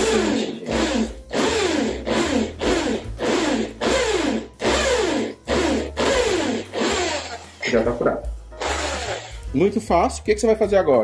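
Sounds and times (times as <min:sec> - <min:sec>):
electric drill boring through metal: 0:00.0 - 0:07.7, 0:08.6 - 0:09.4.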